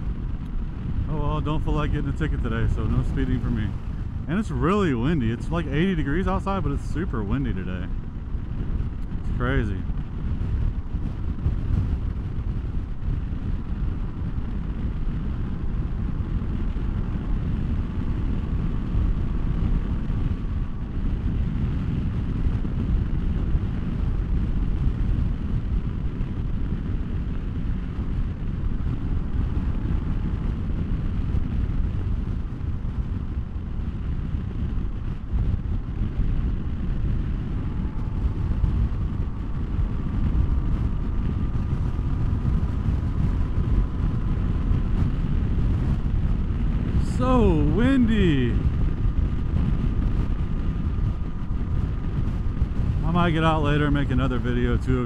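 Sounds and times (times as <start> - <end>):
motorcycle engine cruising: 0.0 - 53.9
wind buffeting microphone: 0.0 - 55.0.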